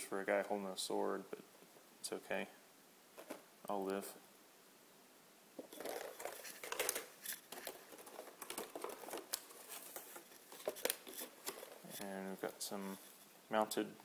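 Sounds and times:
plastic trays crinkling: 0:05.6 - 0:13.2.

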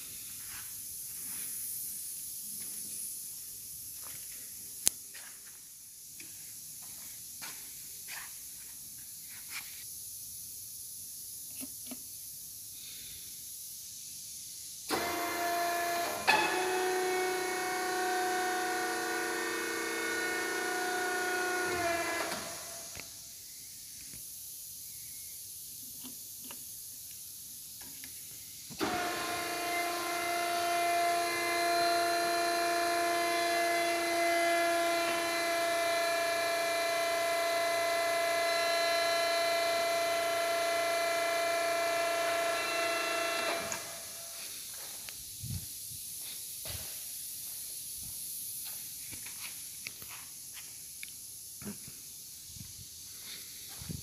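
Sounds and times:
electric motor whining: 0:14.9 - 0:23.0, 0:28.8 - 0:44.2.

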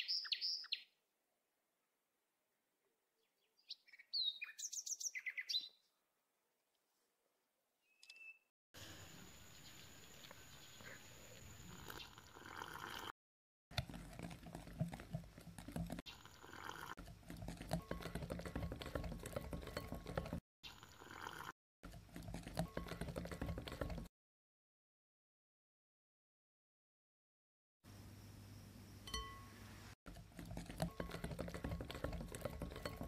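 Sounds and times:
whisk beating batter in bowl: 0:13.7 - 0:20.4, 0:21.8 - 0:24.1, 0:30.1 - 0:33.0.

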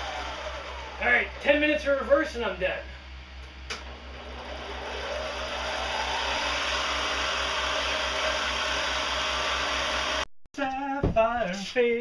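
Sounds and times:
spindle motor whining: 0:00.0 - 0:02.1, 0:03.1 - 0:10.2.

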